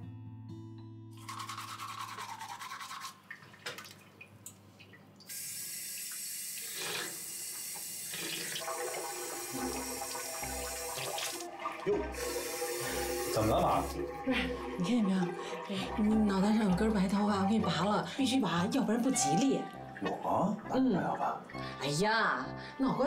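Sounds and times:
tap water running into sink: 0:01.2 - 0:04.2, 0:04.8 - 0:17.9.

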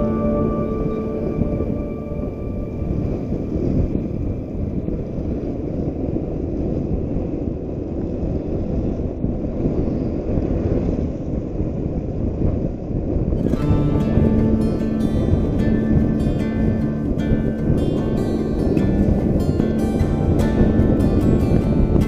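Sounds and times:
wind buffeting microphone: 0:00.0 - 0:22.0
road noise: 0:13.4 - 0:22.0.

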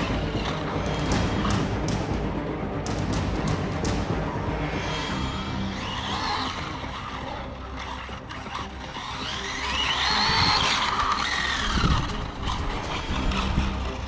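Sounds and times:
electric motor whining: 0:04.4 - 0:14.0.

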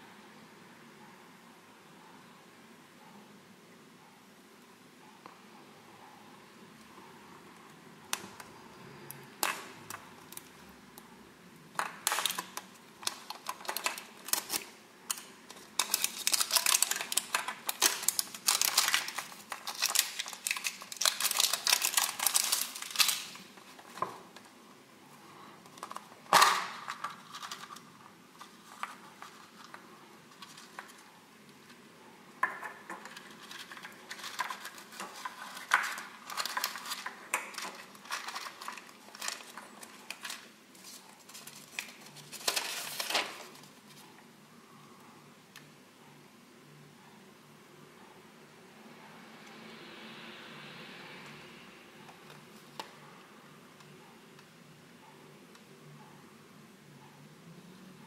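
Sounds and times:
plastic shrink-wrap crinkling: 0:11.8 - 0:24.5, 0:25.7 - 0:31.0, 0:32.4 - 0:44.0
paper and plastic rustling: 0:11.8 - 0:24.6, 0:25.2 - 0:31.8, 0:32.4 - 0:44.2.

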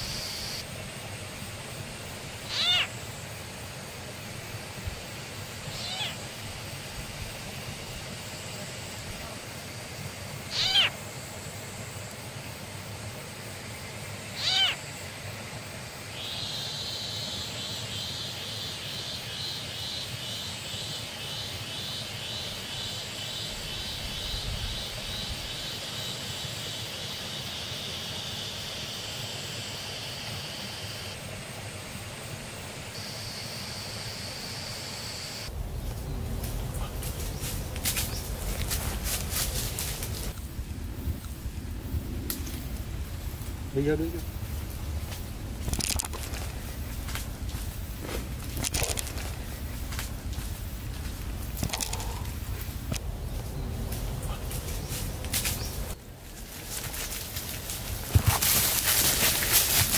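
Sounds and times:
short animal cries: 0:02.5 - 0:02.9, 0:05.7 - 0:06.2, 0:10.5 - 0:11.0, 0:14.4 - 0:14.8.

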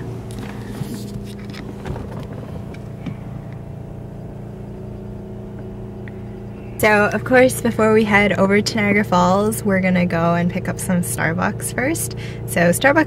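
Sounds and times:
low machine hum in car cabin: 0:00.0 - 0:13.0.

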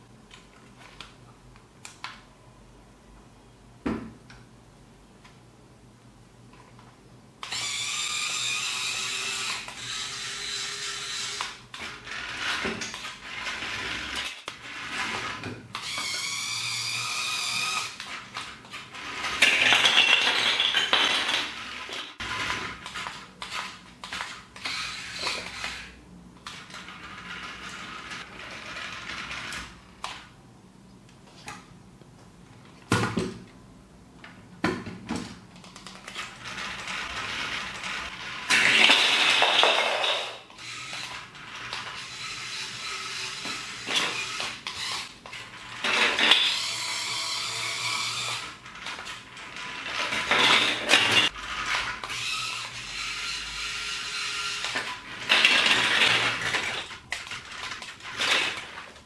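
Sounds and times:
small electric motor whirring: 0:07.4 - 0:20.0, 0:21.5 - 0:29.8, 0:40.6 - 0:58.7.

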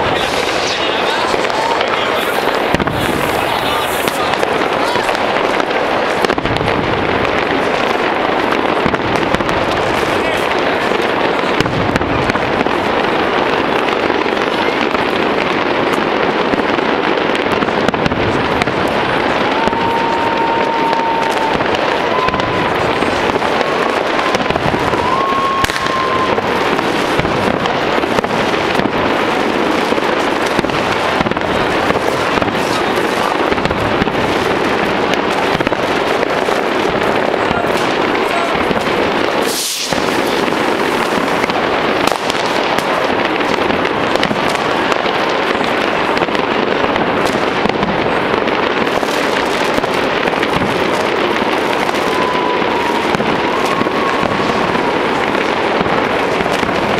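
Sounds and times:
fireworks crackling and banging: 0:00.0 - 0:56.9
sharp firework crack: 0:00.0 - 0:56.9.

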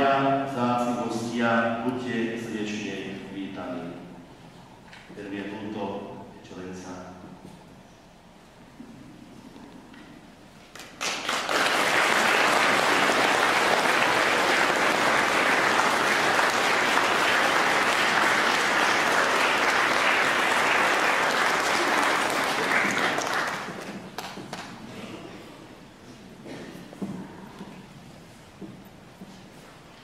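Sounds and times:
congregation applauding: 0:10.7 - 0:24.9.

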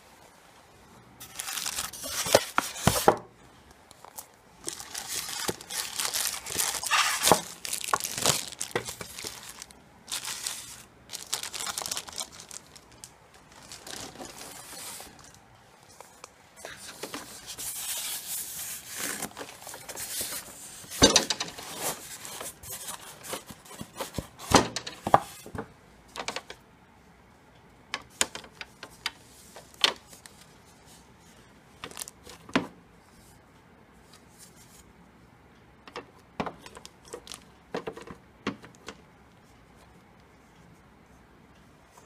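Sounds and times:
plastic wrapping crinkling: 0:01.2 - 0:03.1, 0:03.9 - 0:24.2, 0:31.8 - 0:32.4, 0:36.6 - 0:37.5.

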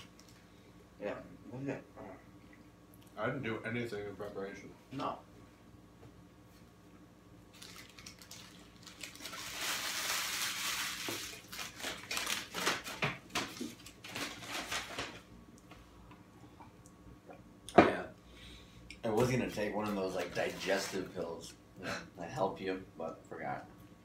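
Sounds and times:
paper wrappers crinkling: 0:07.5 - 0:15.3.

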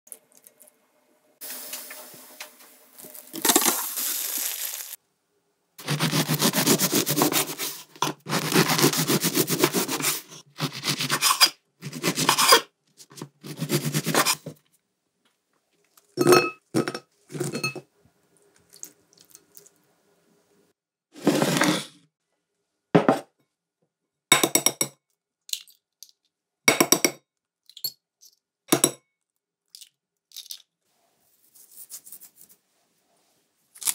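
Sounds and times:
eggshells cracking: 0:03.0 - 0:05.0, 0:29.7 - 0:30.7
knife sawing crusty bread: 0:05.8 - 0:12.7, 0:13.4 - 0:14.4.

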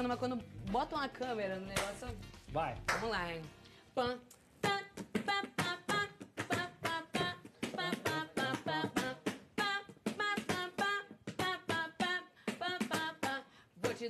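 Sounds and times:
person beatboxing sung syllables: 0:04.1 - 0:14.0.

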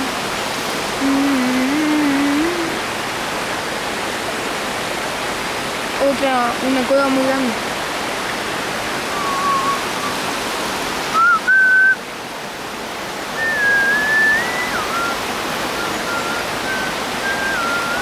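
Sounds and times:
person whistling: 0:09.1 - 0:10.2, 0:11.2 - 0:12.0, 0:13.4 - 0:15.2, 0:15.8 - 0:18.0.

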